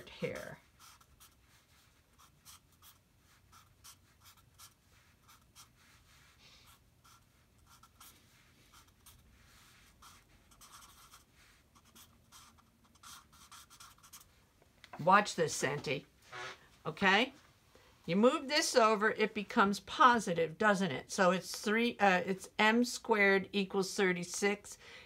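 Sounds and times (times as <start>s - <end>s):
marker writing on paper: 0.0s - 14.4s.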